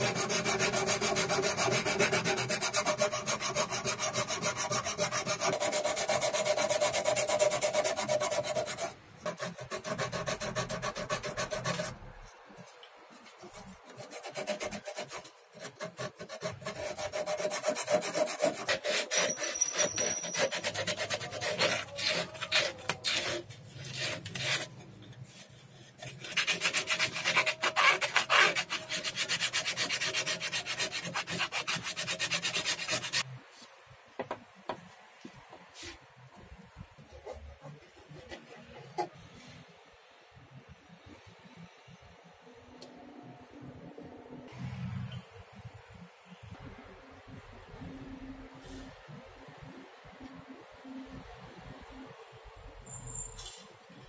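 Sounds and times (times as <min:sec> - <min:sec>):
sanding wood by hand: 0:00.0 - 0:12.0, 0:13.5 - 0:24.7, 0:26.0 - 0:33.2.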